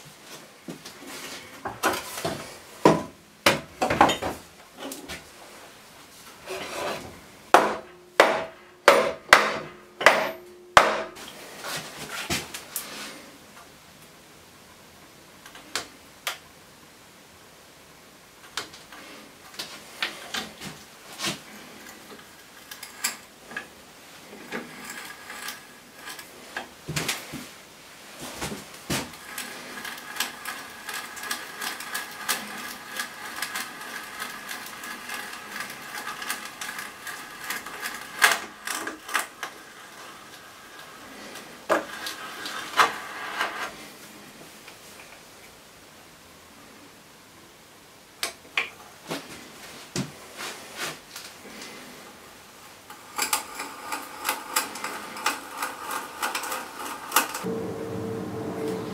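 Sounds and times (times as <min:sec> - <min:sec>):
hand brace boring into wood: 0:29.1 - 0:43.7.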